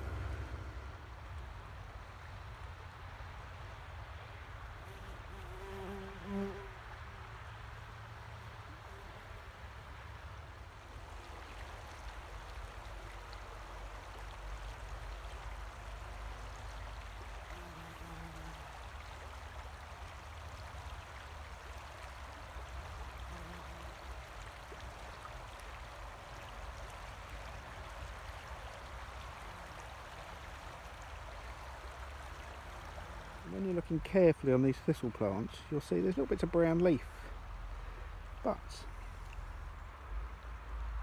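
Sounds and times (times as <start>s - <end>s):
low rumble: 0.0s - 2.1s
river water rushing: 0.0s - 4.7s, 6.7s - 41.0s.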